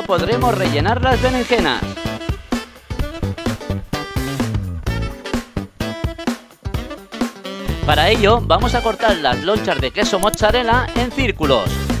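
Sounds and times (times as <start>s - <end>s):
plucked string music over beat: 0.0s - 5.7s, 7.6s - 11.2s.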